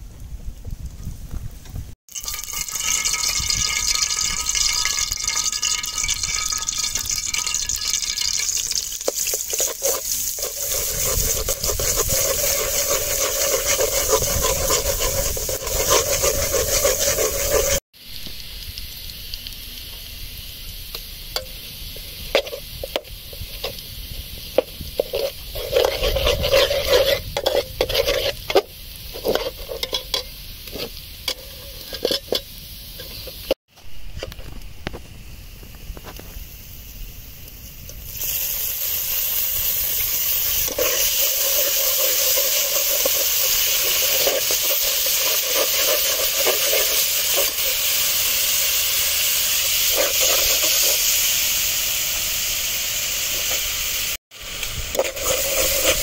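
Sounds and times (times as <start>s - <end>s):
oil sizzling in a pot: 2.1s - 33.6s, 35.8s - 56.0s
metal spatula scraping pot: 2.2s - 17.8s, 25.0s - 33.4s, 40.6s - 48.0s, 49.6s - 51.1s, 54.7s - 56.0s.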